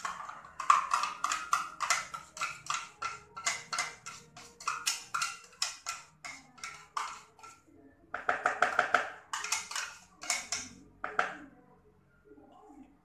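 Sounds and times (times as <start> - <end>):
jar of seasoning rattling: 0.0 - 7.6, 9.3 - 10.7.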